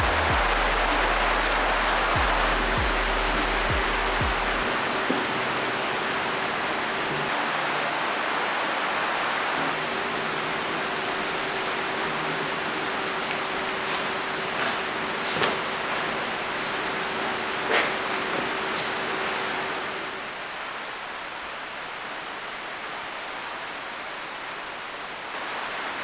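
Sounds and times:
rushing hiss: 0.0 - 12.4
faint steady hum: 0.0 - 17.2.

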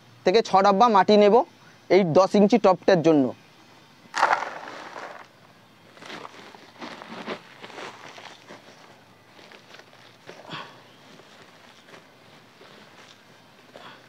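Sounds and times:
soil pouring into plastic basin: 4.1 - 5.3
can scooping soil from sack: 4.1 - 10.5.

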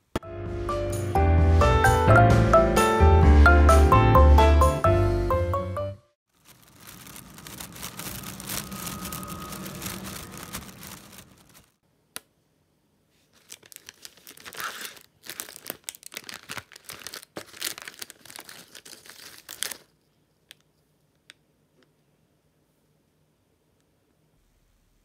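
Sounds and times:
snack bag crinkling and tearing: 6.3 - 11.7, 13.3 - 20.0.

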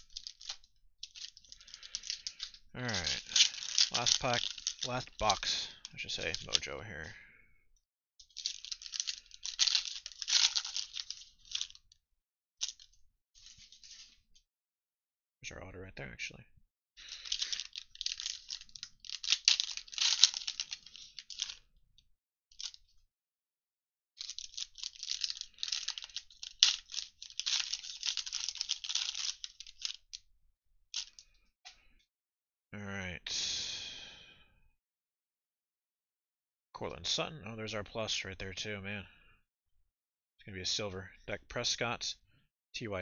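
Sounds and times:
card packaging tearing and crinkling: 0.0 - 6.7, 8.4 - 11.8, 17.0 - 21.6, 24.2 - 29.9.

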